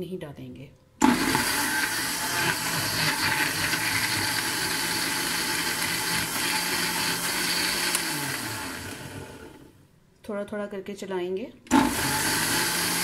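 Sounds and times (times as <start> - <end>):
blender running: 1.0 - 9.8, 11.7 - 13.0.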